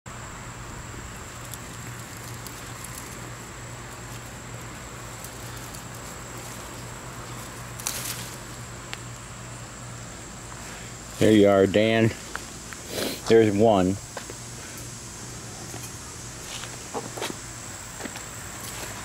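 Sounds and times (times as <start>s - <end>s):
plant leaves rustling: 0.9s - 9.2s.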